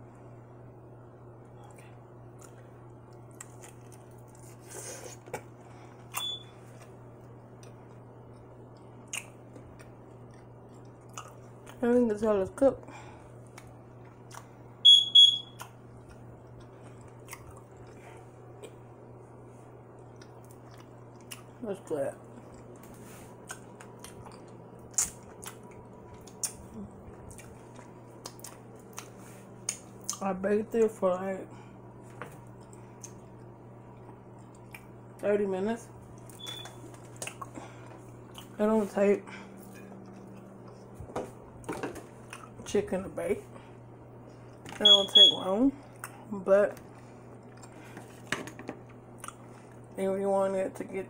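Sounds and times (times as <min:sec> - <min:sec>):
person chewing with mouth smacks: 0:01.6 - 0:11.8, 0:13.4 - 0:14.5, 0:15.6 - 0:18.8, 0:20.0 - 0:21.6, 0:22.3 - 0:30.2, 0:32.5 - 0:35.0, 0:36.1 - 0:38.6, 0:39.6 - 0:41.0, 0:42.2 - 0:42.6, 0:46.8 - 0:48.2, 0:49.1 - 0:49.9
lip smacks: 0:09.0 - 0:11.8, 0:22.8 - 0:26.7, 0:36.2 - 0:37.6.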